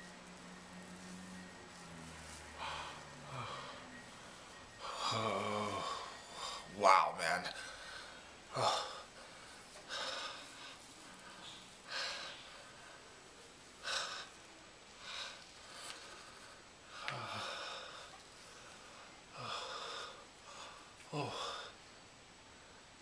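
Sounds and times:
man breathing heavily: 0:02.3 - 0:06.8, 0:07.5 - 0:21.8
man sighing: 0:04.8 - 0:06.6, 0:21.1 - 0:21.8.

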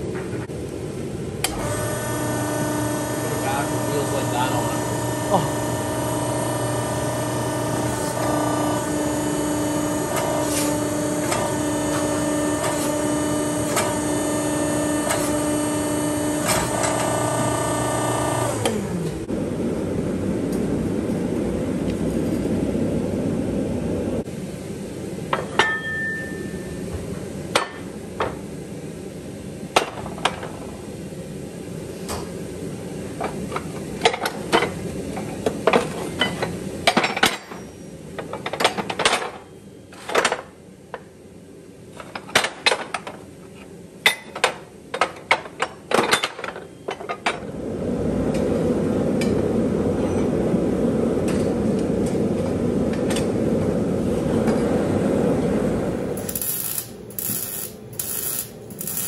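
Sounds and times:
forge burner rushing: 0:01.4 - 0:19.0, 0:54.8 - 0:59.0.

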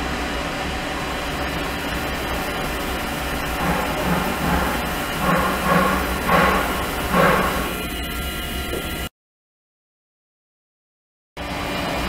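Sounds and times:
pump humming: 0:00.0 - 0:09.1.

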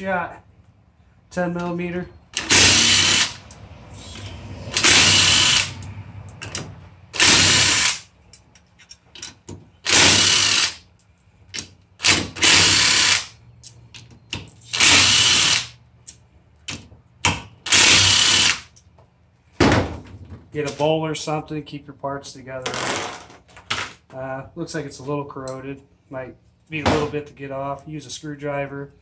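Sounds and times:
cordless drill bursts: 0:02.4 - 0:03.4, 0:04.2 - 0:05.8, 0:07.2 - 0:08.1, 0:09.8 - 0:10.8, 0:12.0 - 0:13.4, 0:14.7 - 0:15.8, 0:17.6 - 0:18.7.

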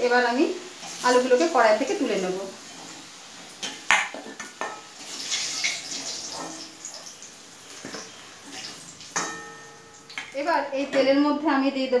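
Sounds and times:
oil sizzling: 0:00.0 - 0:11.1
metal spoon clinking on metal: 0:09.2 - 0:10.4.

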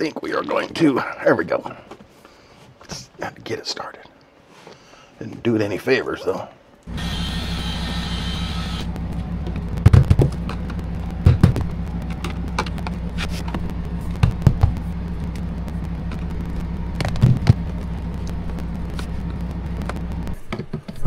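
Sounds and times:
steady low hum: 0:06.8 - 0:20.5.

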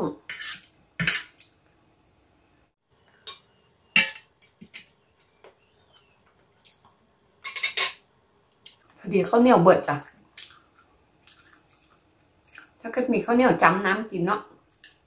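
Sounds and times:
cutlery clinking on metal tray: 0:03.2 - 0:04.9, 0:07.4 - 0:08.0.

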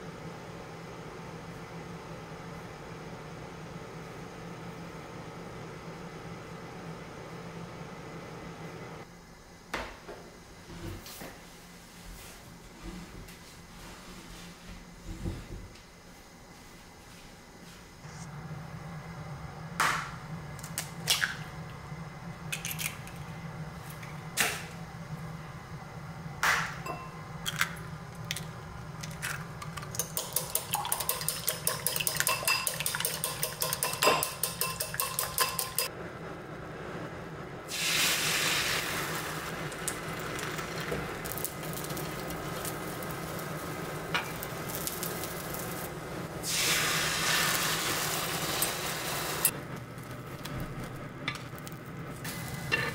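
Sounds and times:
whisk beating eggs in bowl: 0:29.9 - 0:35.9
pan sizzling: 0:37.7 - 0:52.9.

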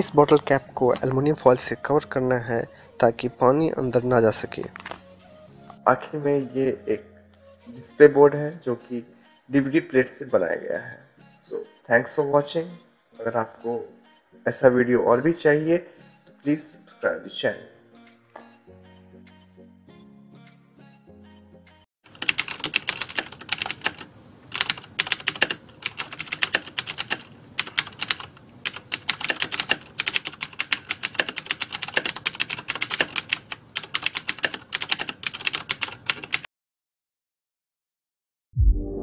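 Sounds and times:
rapid typing clicks: 0:22.1 - 0:36.5.

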